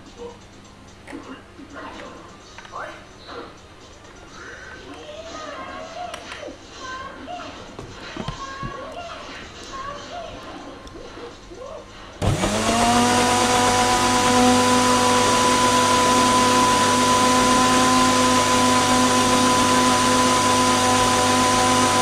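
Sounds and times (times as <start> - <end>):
blender motor whining: 12.2 - 22.0.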